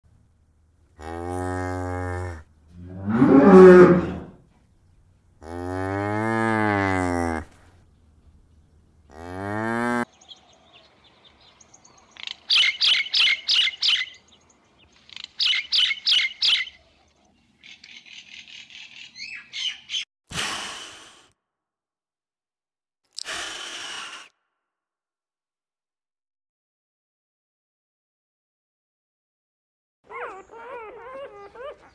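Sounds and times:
loud rough animal call: 0:01.0 - 0:04.4
long low animal calls: 0:01.5 - 0:04.4.

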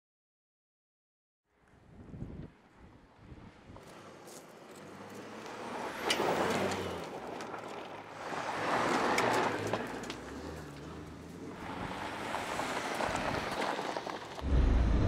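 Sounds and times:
tyres crunching on gravel: 0:03.8 - 0:14.7.

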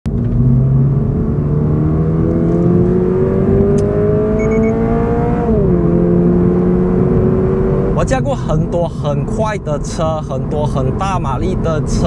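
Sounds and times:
car engine accelerating: 0:00.1 - 0:08.1
short high beeps: 0:04.4 - 0:04.8.

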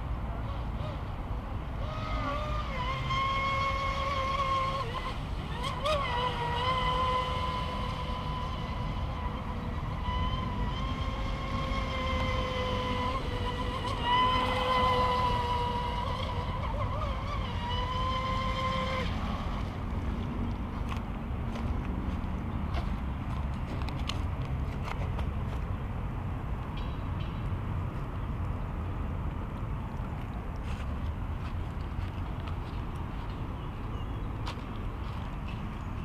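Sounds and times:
toy speedboat motor whine: 0:00.4 - 0:21.0.

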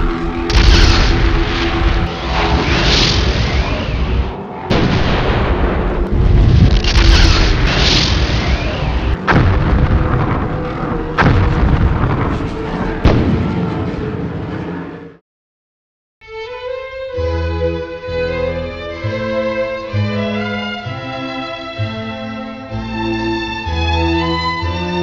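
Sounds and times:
gunfire: 0:00.5 - 0:01.6, 0:06.6 - 0:12.4, 0:13.0 - 0:13.8
explosions: 0:00.5 - 0:14.7.

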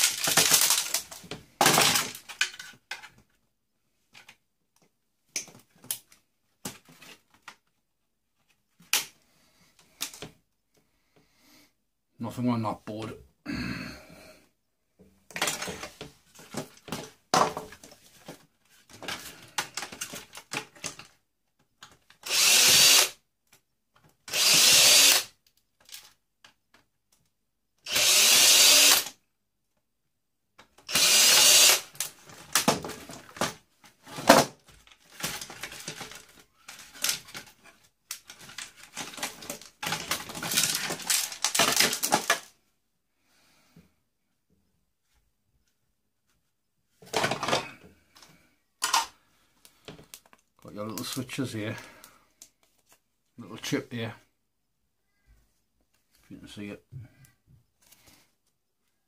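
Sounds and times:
parts clicking and rattling: 0:00.0 - 0:03.3, 0:34.2 - 0:42.6
power drill running: 0:22.2 - 0:23.1, 0:24.3 - 0:25.3, 0:27.9 - 0:29.1, 0:30.9 - 0:32.0.

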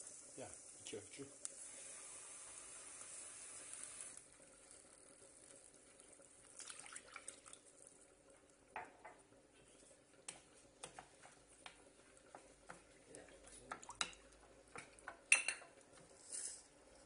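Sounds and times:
water pouring into a pan: 0:00.0 - 0:17.0
water dripping: 0:04.1 - 0:16.0
cup and spoon clicking on pan: 0:13.7 - 0:15.8.

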